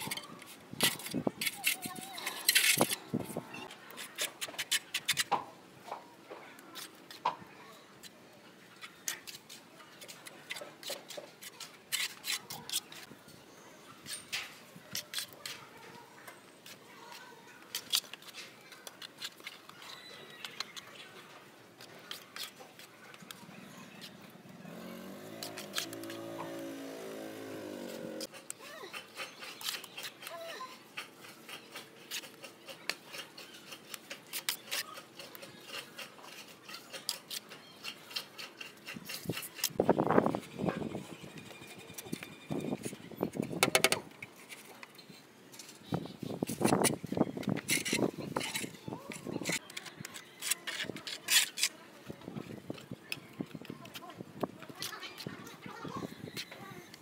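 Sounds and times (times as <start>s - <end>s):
trowel scraping mortar: 0.0s - 5.3s, 9.1s - 13.1s, 21.8s - 40.4s, 46.4s - 51.8s.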